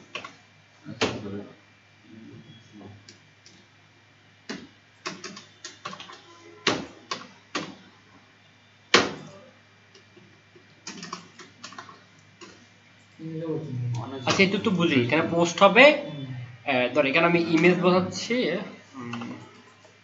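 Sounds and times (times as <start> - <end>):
computer keyboard typing: 4.5 - 7.8, 10.8 - 12.6.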